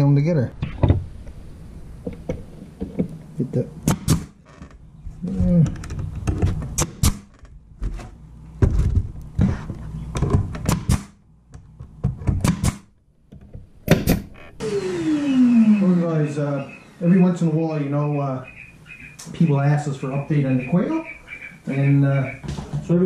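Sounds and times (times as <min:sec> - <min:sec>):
nail gun shots: 0:03.8 - 0:04.4, 0:06.8 - 0:07.3, 0:10.6 - 0:11.2, 0:12.3 - 0:12.9, 0:13.9 - 0:14.8
boards knocking: 0:22.3 - 0:23.0.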